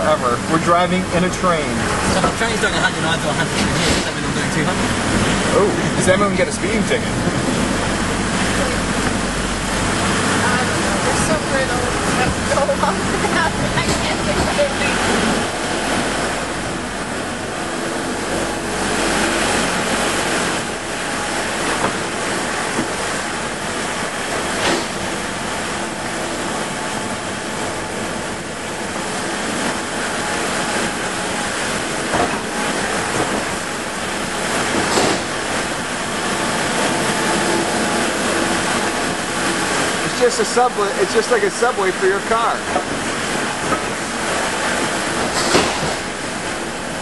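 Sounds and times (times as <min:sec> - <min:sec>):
short metal clunks: 0:45.3 - 0:46.0.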